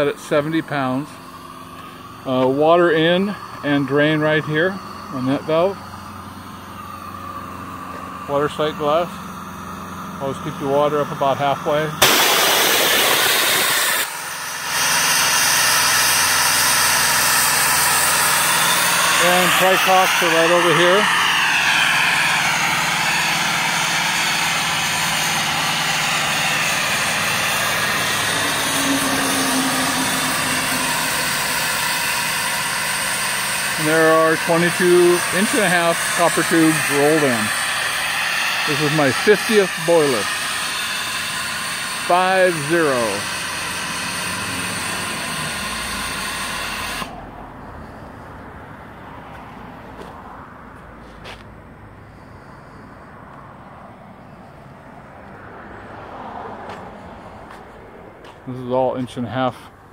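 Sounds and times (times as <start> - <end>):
steam hissing: 0.0 - 47.2.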